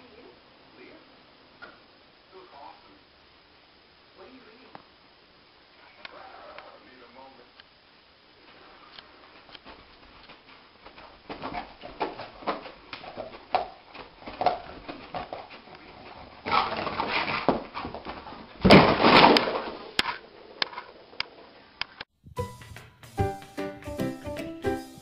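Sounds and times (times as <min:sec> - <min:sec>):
dog thrashing and scrambling: 0:11.0 - 0:19.8.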